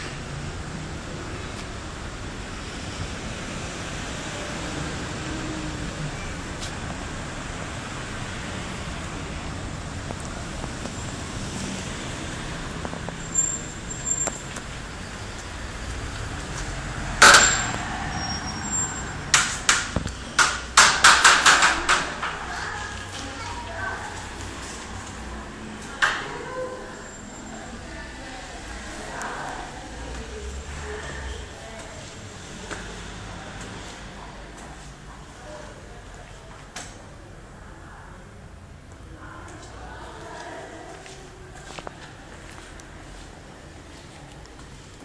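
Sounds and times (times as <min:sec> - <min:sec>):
city traffic: 0:00.0 - 0:45.0
loud sharp knocks: 0:17.2 - 0:18.0, 0:19.3 - 0:22.4.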